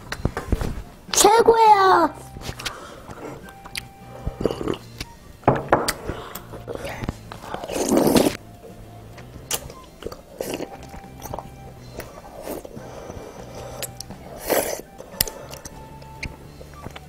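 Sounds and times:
chewing: 2.5 - 5.2, 9.4 - 17.0
mouth and spoon clicks: 3.4 - 5.2, 13.8 - 17.0
child slurping soup: 4.2 - 4.9, 7.4 - 8.4, 9.7 - 15.7.

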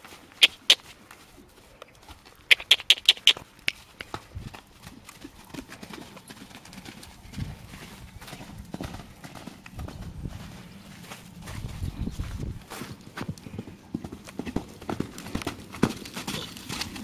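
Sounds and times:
hooves thudding on sand: 0.0 - 17.0
sharp clicks: 0.4 - 0.8, 2.5 - 4.2.

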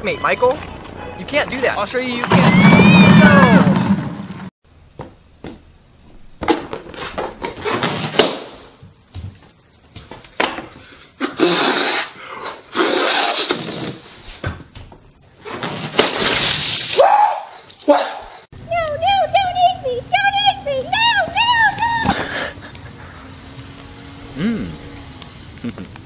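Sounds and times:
puffs of air into balloon: 11.1 - 14.2.

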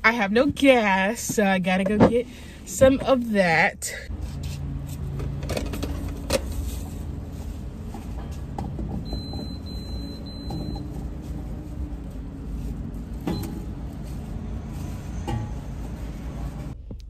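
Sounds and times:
low rumble of vehicles: 0.0 - 17.0
fuel pump beeping: 8.2 - 11.9, 13.2 - 13.8.

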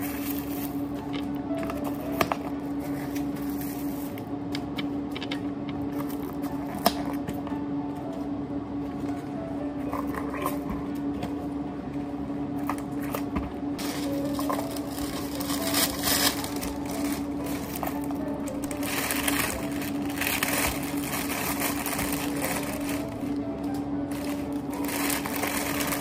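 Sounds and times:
steady low hum: 0.0 - 26.0
plastic bag crinkling: 13.8 - 26.0.

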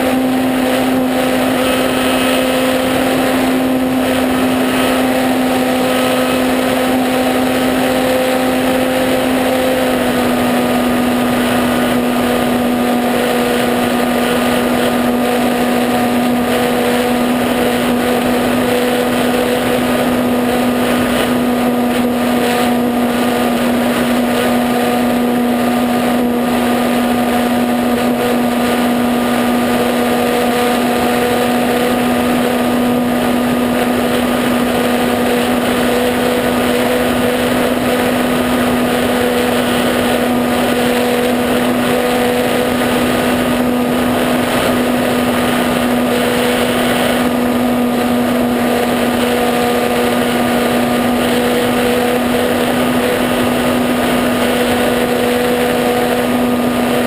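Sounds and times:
model plane motor droning: 0.0 - 57.0
wind noise: 0.0 - 57.0.

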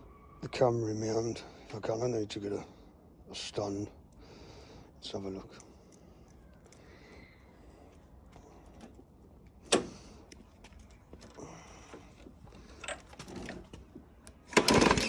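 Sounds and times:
recoil starter cord pull: 14.4 - 15.0.

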